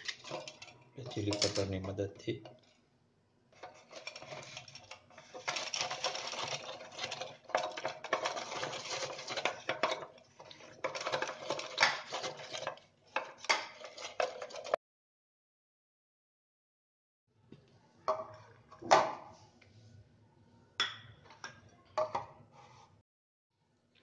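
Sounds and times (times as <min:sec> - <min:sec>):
chilli cutter blades clattering: 0:00.0 - 0:02.0.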